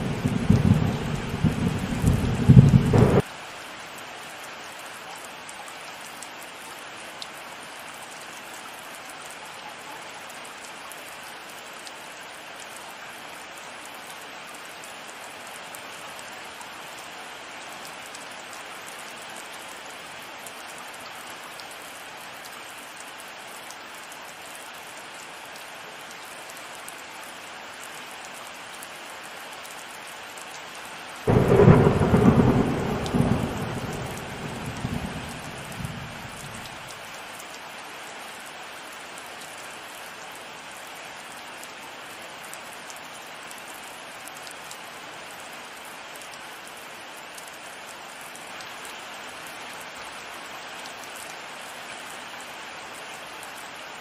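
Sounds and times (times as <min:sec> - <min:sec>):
thunderclap rumbling: 0:00.0 - 0:03.2, 0:31.3 - 0:36.7
heavy rain falling: 0:00.0 - 0:05.5, 0:06.4 - 0:54.0.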